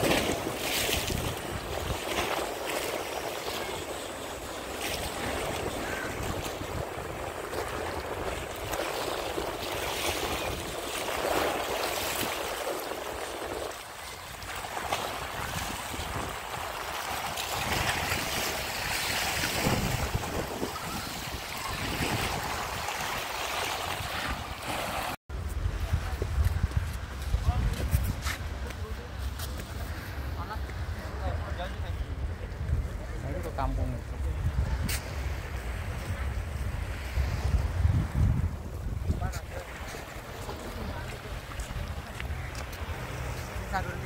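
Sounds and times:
waves splashing against rocks: 0.0 - 25.2, 34.4 - 44.0
wind buffeting microphone: 0.0 - 28.9, 31.2 - 44.0.

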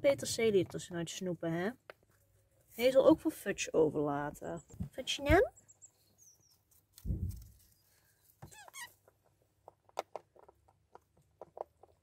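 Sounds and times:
rabbit crunching vegetables: 6.6 - 12.0
brief squeak: 8.5 - 8.9.

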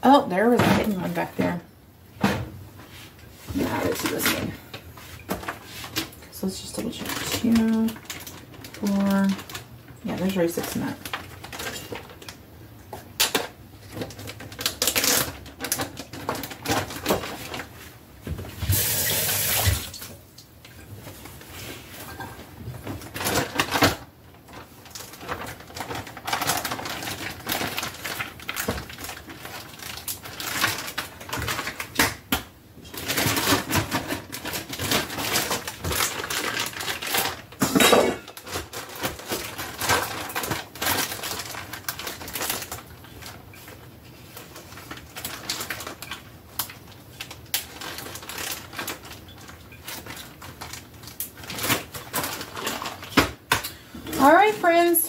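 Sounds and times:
dishes and containers clattering: 37.6 - 38.7.

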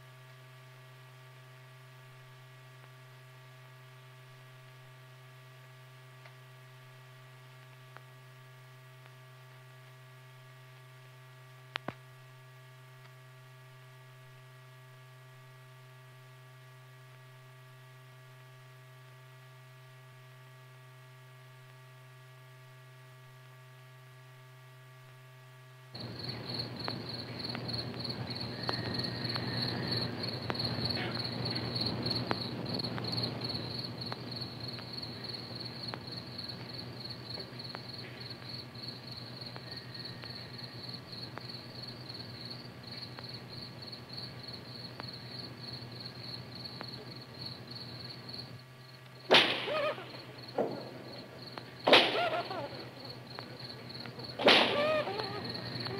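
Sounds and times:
low electrical hum: 0.0 - 55.9
crickets chirping: 26.0 - 55.9
hiss: 51.8 - 52.9, 54.4 - 55.9.

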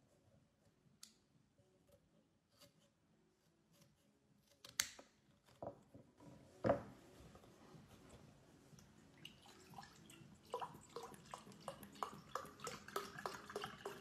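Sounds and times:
scissors snipping cardboard: 3.7 - 5.6.

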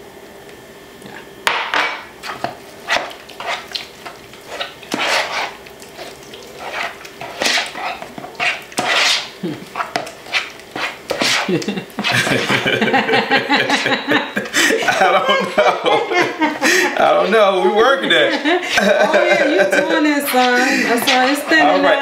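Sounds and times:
spoon stirring batter in bowl: 2.2 - 12.7, 18.1 - 22.0.

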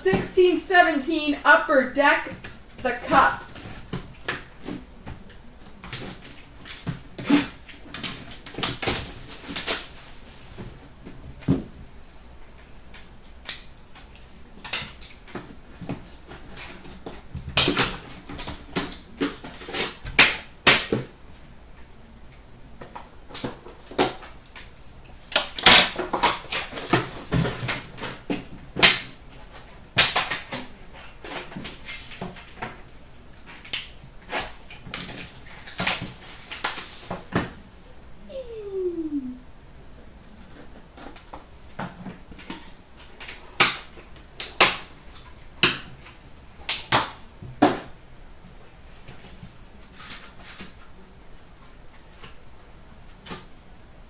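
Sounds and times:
plastic wrap crinkling and tearing: 6.0 - 10.2, 35.4 - 37.2.

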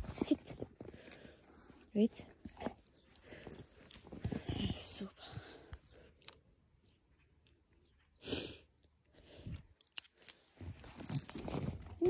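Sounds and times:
rustling: 10.7 - 12.0.

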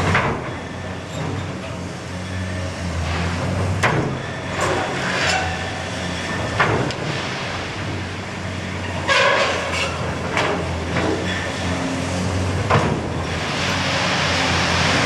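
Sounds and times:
excavator diesel engine droning: 0.0 - 15.0.

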